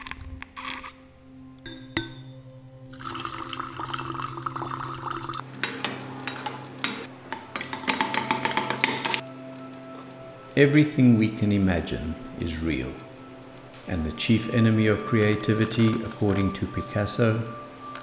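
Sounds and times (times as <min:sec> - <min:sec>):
low music drone: 0:00.0 - 0:18.0
liquid pouring into glass: 0:02.9 - 0:05.4.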